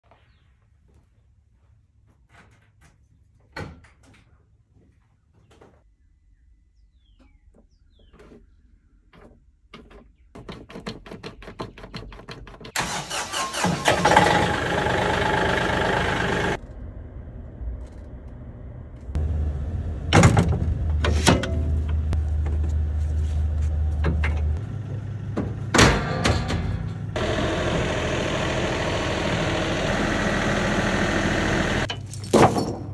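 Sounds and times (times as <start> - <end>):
engine cranking harshly: 12.7 - 16.8
low engine hum: 14.0 - 26.0, 26.7 - 32.2.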